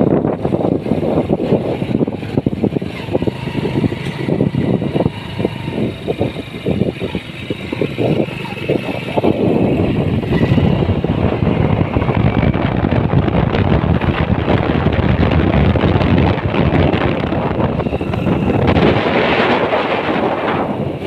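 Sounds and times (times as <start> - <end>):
motorcycle engine running: 0.0 - 21.0
wind buffeting microphone: 0.0 - 21.0.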